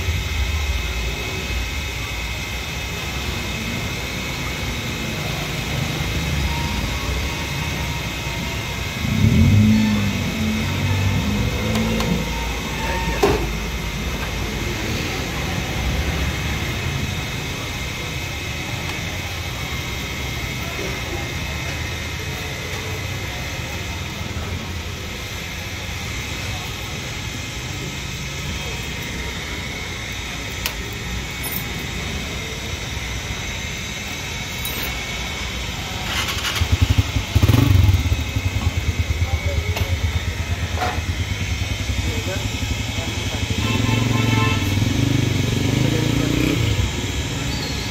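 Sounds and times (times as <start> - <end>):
street noise: 0.0 - 47.9
motorcycle engine pulsing: 2.8 - 47.9
traffic engines humming: 2.8 - 47.9
metallic clink: 34.5 - 35.0.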